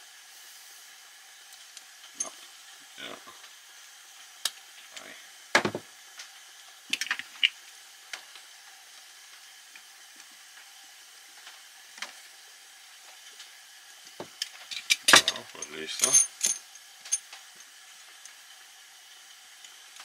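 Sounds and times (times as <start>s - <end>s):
faint steady hiss: 0.0s - 20.0s
metal parts clicking and knocking: 14.6s - 17.2s.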